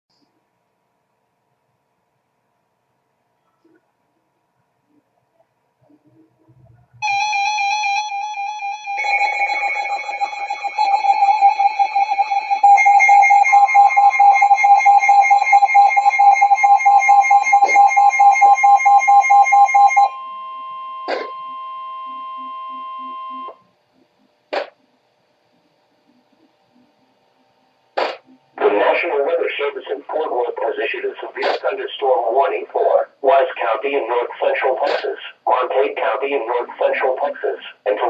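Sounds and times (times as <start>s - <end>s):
steady alert tone: 7.0s - 20.2s
pulsing electronic alarm beeps: 7.0s - 23.7s.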